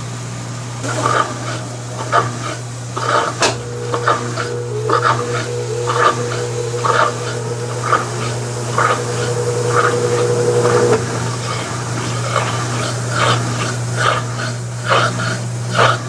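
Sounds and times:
washing machine drain pump hum: 0.0 - 16.0
high-pitched whine: 0.8 - 13.2.

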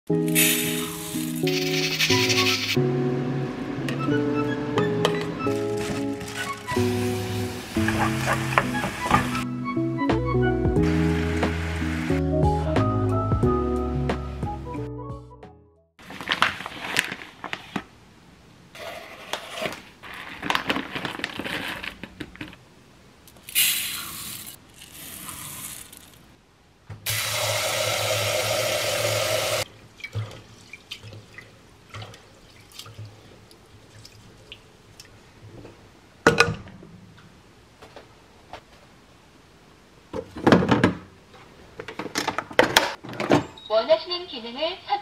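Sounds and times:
tap water running into pot: 27.1 - 30.4.

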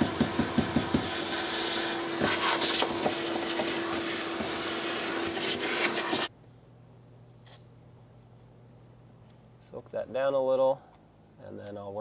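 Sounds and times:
vacuum cleaner running: 0.0 - 6.3.

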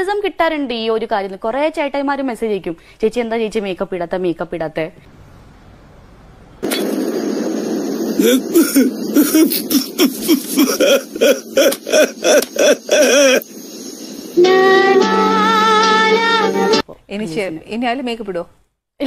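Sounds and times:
steady hiss: 6.6 - 16.8
man sobbing loudly: 8.2 - 13.4.

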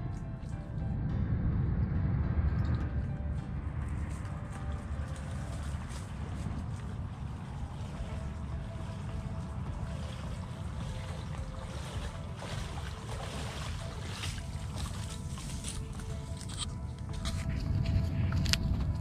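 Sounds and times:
wind buffeting microphone: 0.0 - 19.0
wading steps splashing: 4.0 - 16.4.

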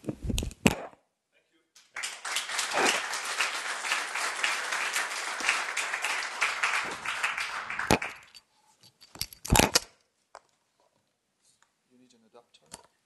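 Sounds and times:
audience applauding: 1.8 - 8.4.

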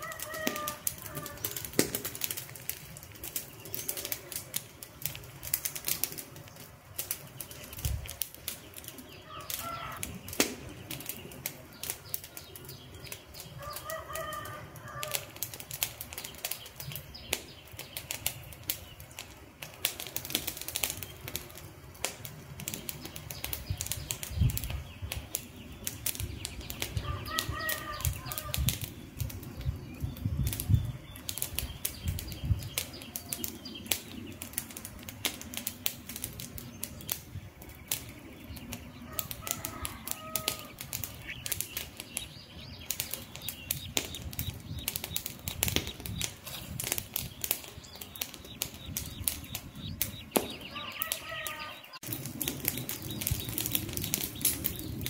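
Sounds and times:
bird calling: 0.0 - 1.8, 8.4 - 15.4, 22.8 - 35.3, 36.4 - 55.0
campfire crackling: 0.0 - 55.0
low fluttering rumble: 52.0 - 55.0.

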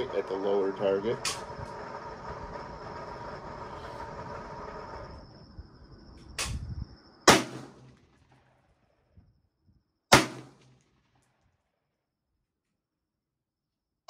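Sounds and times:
steady low hum: 0.0 - 10.6
quieter bang: 6.2 - 9.0, 10.1 - 11.4
rifle shot: 7.3 - 8.8, 10.1 - 11.4.

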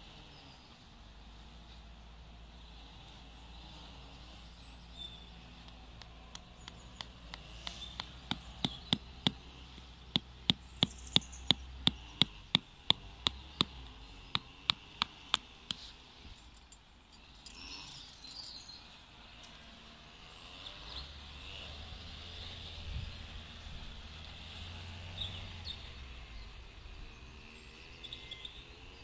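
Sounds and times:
rubber mallet hammering tent peg: 6.0 - 15.8.

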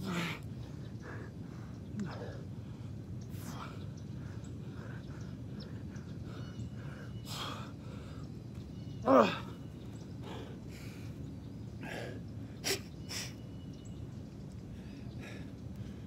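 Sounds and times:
man breathing hard: 0.0 - 8.3, 14.6 - 16.0.

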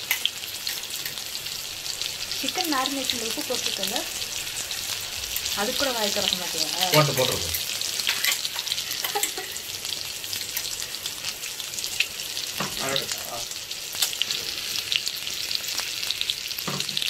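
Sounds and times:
oil sizzling and crackling: 0.0 - 17.0.

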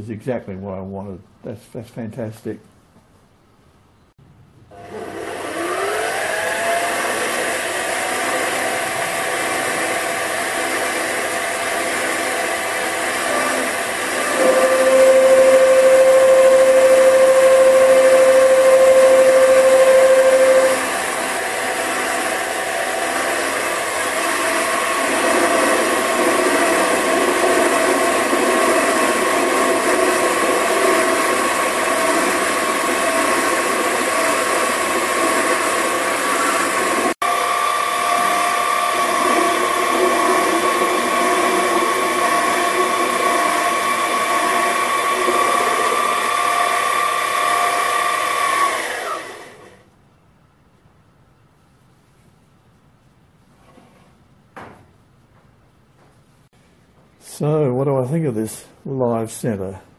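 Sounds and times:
lathe motor whirring: 4.7 - 49.8
loud steady whine: 5.6 - 49.6.

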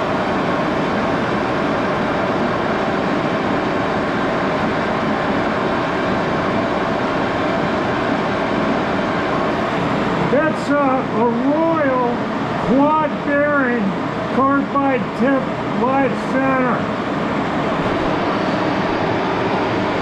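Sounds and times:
lathe running: 0.0 - 20.0.

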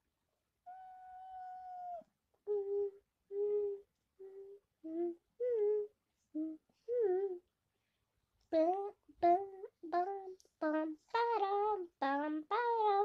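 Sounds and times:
girl humming a tune: 2.4 - 7.4.

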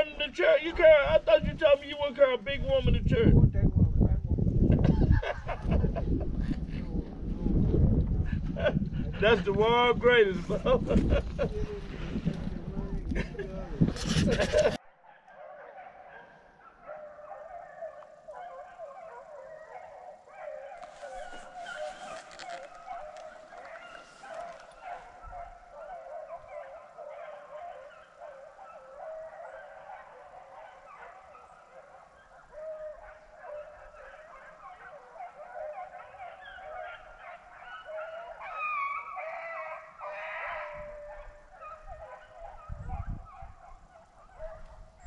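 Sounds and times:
hounds baying: 14.0 - 45.0.

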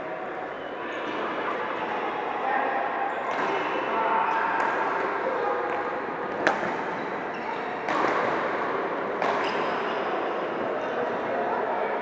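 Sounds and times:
sports hall background noise: 0.0 - 12.0
rackets hitting shuttlecocks: 5.7 - 7.0, 7.8 - 8.6, 9.2 - 9.8.

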